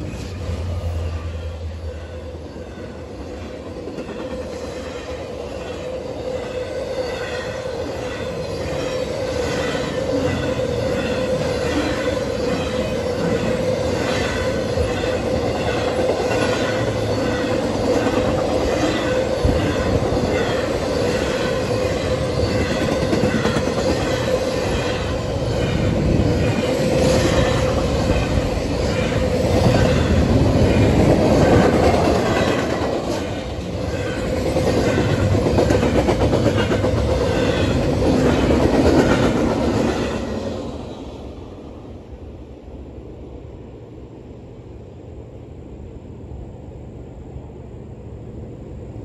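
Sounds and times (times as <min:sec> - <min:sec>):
freight train passing: 0:00.0 - 0:49.0.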